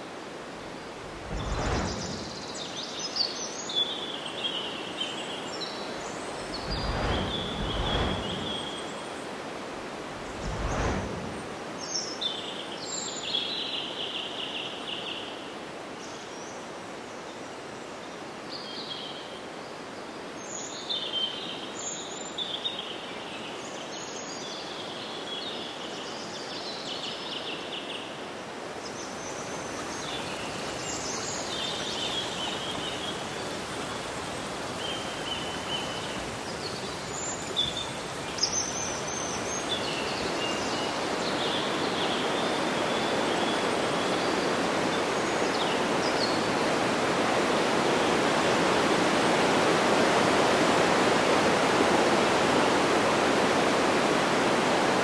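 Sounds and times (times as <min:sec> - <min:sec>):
running water rushing: 0:00.0 - 0:12.2, 0:28.5 - 0:55.0.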